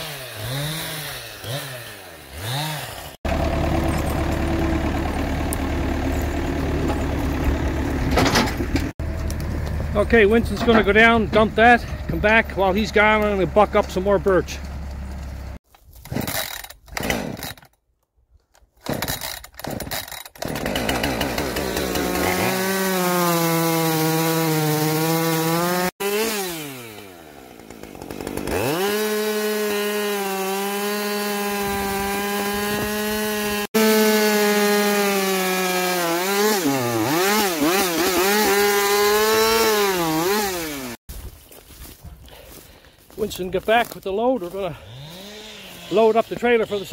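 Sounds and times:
chainsaw cutting log: 0.0s - 9.5s, 16.0s - 17.8s, 18.6s - 41.0s, 44.4s - 46.9s.

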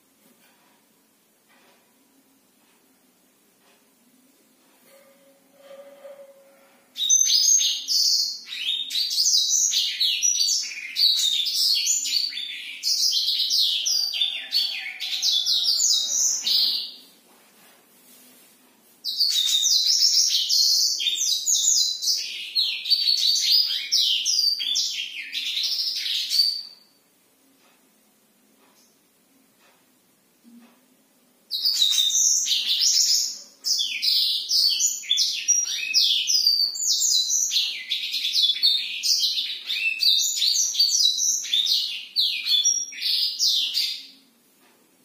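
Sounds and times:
canary singing rolling song: 4.8s - 17.2s, 19.0s - 27.8s, 31.2s - 44.6s.

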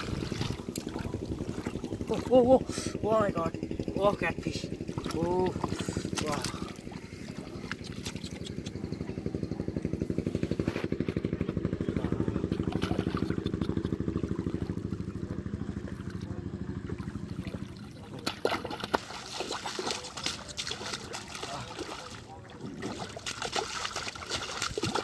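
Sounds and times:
hands splashing in muddy water: 0.0s - 2.9s, 4.8s - 8.8s, 12.0s - 15.1s, 17.0s - 25.0s
small engine running: 0.0s - 25.0s.

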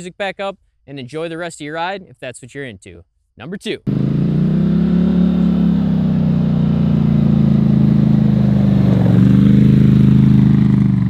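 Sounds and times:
quad bike engine running: 3.9s - 11.0s.

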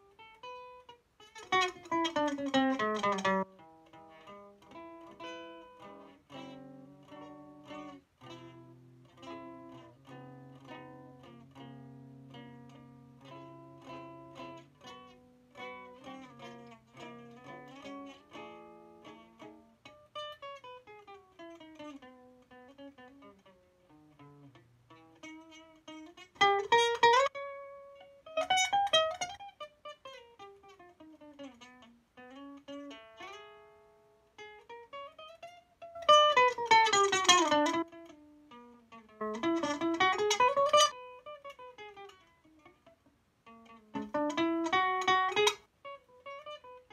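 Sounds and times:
rapid guitar strumming: 0.0s - 42.9s, 43.5s - 46.9s
acoustic guitar melodic runs: 1.4s - 19.8s, 36.1s - 41.2s, 43.6s - 45.7s.

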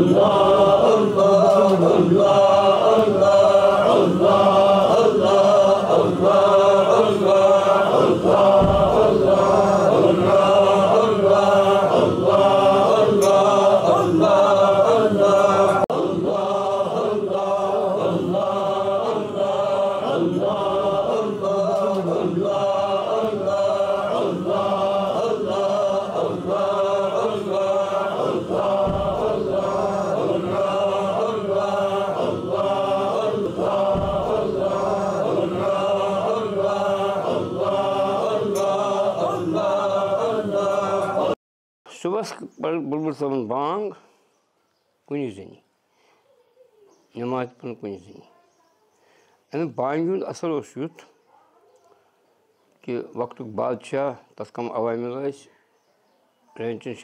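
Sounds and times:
men chanting in unison: 0.0s - 41.4s.

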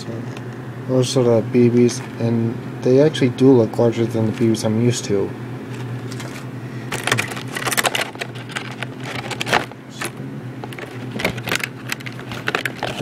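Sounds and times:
steady low hum: 0.0s - 13.0s
plastic packaging rustling: 5.7s - 13.0s.

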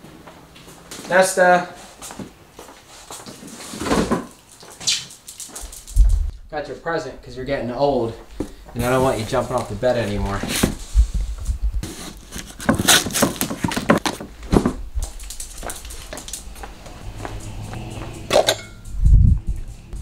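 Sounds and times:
cardboard box scrapes and knocks: 11.8s - 14.0s.

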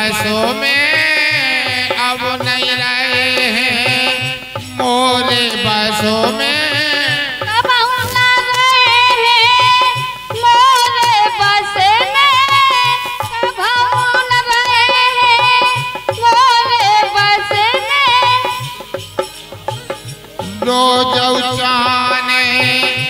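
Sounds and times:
woman singing folk song: 0.0s - 18.9s
drum strokes: 0.0s - 23.0s
harmonium: 0.0s - 23.0s.

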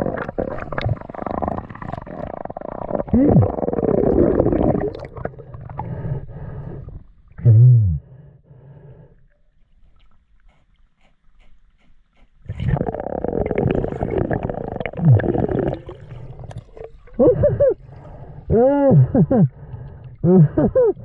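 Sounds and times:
churning water and bubbles: 0.0s - 8.2s, 12.5s - 21.0s
groan-like underwater vocal sound: 0.0s - 8.4s, 12.5s - 21.0s
short muffled vocal sounds: 7.4s - 8.1s.

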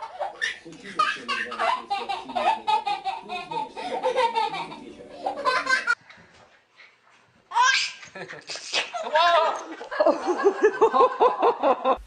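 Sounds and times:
baby laughing: 0.0s - 6.0s, 7.5s - 9.7s.

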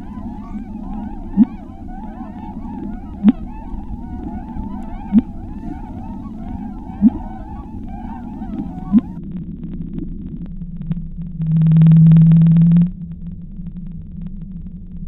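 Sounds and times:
whale-like calls: 0.0s - 9.2s
low steady drone: 0.0s - 15.0s.

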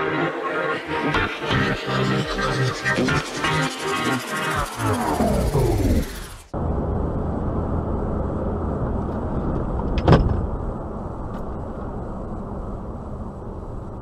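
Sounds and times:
car road and engine noise: 4.4s - 14.0s.

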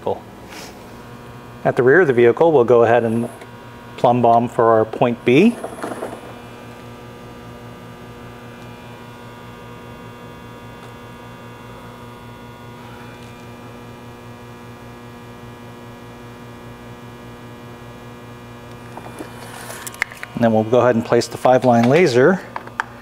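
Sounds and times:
electrical mains hum: 0.0s - 23.0s.

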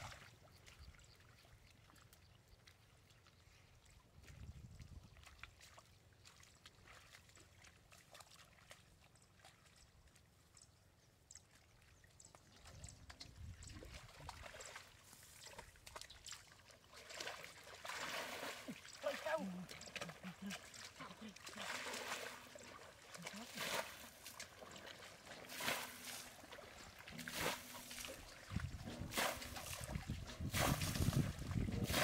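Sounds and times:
shallow water sloshing: 12.7s - 32.0s
water splashing: 13.6s - 32.0s.

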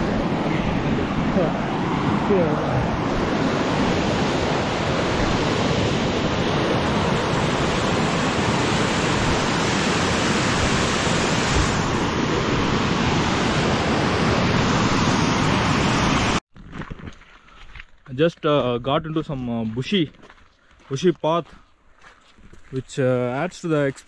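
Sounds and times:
stream water rushing: 0.0s - 16.4s.

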